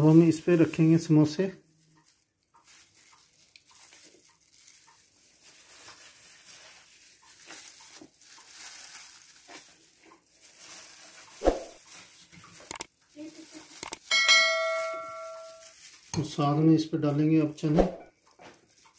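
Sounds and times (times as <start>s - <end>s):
plastic glove crinkling: 0.0s - 16.6s, 18.1s - 18.9s.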